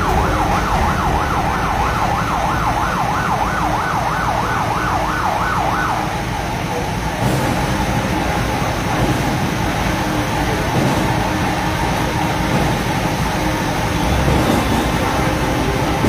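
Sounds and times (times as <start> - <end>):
low rumble: 0.0 - 3.6
fire hose water spray: 0.0 - 16.0.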